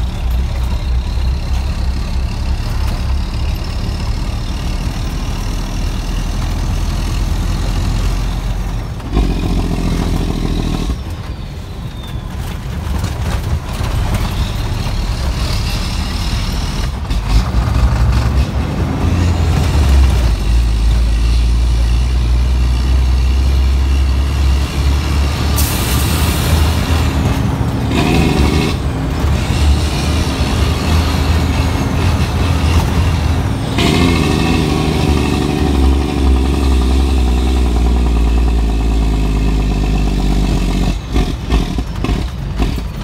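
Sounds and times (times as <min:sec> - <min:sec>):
truck engine droning: 0:00.0 - 0:43.0.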